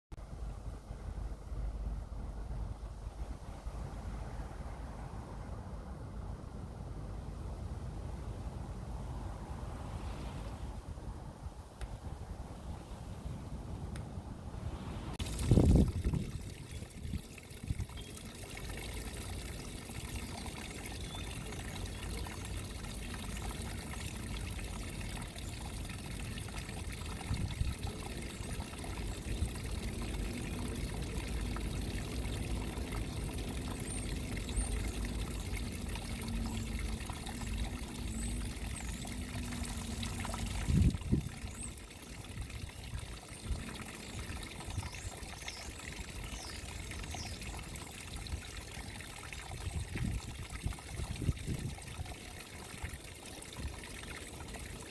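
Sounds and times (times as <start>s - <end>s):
water trickling over stones: 15.2s - 54.9s.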